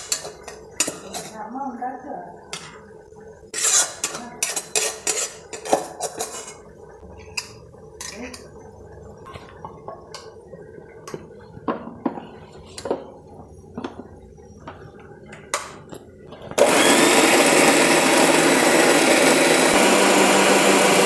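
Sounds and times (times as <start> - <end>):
metal spatula scraping metal pan: 3.5 - 6.6.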